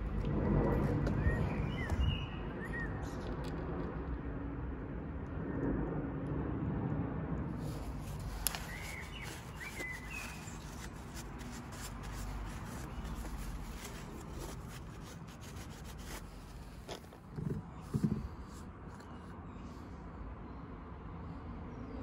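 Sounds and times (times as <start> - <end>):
outdoor background noise: 0.0 - 22.0
bird chirps: 8.5 - 10.8.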